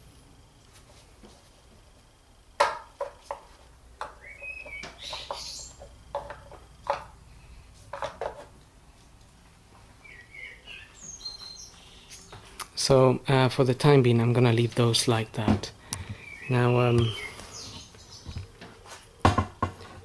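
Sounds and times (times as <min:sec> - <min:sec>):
plastic parts clicking and knocking: 0:04.8 - 0:07.2.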